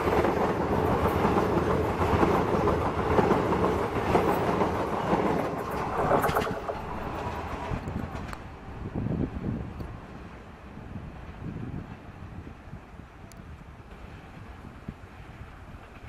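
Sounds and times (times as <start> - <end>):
sharp clicks of train wheels: 0.0 - 8.6, 15.6 - 16.0
train wheels rumbling on rails: 0.0 - 16.0.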